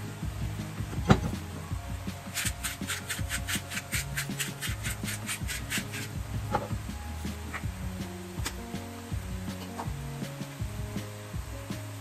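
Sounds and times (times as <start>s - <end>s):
pepper mill grinding: 2.4s - 6.1s.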